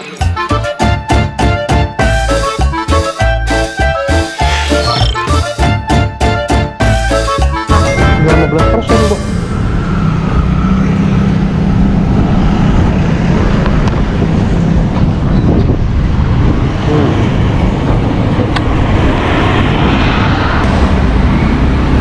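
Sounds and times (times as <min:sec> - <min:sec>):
wind noise on microphone: 0:11.2 - 0:22.0.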